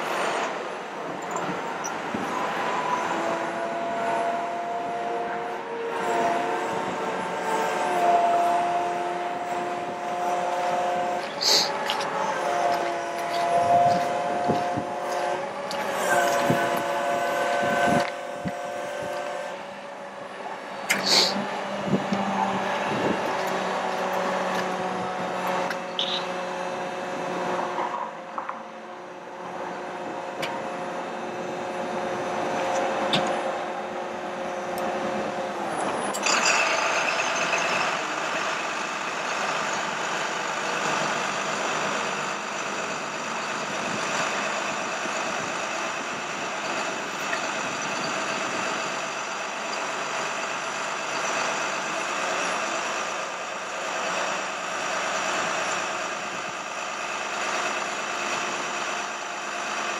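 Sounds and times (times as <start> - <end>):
truck engine running: 3.5 - 59.9
machine whines: 29.4 - 59.2.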